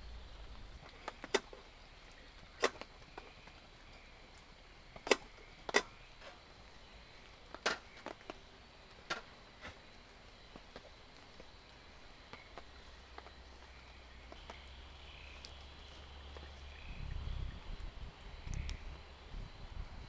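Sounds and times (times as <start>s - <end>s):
faint steady hiss: 0.0s - 20.0s.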